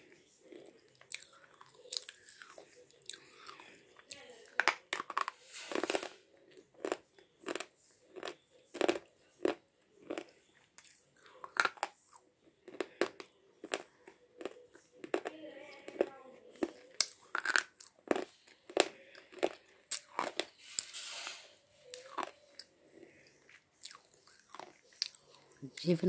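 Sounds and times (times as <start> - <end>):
pencil crunching between teeth: 4.5 - 6.2, 15.9 - 25.5.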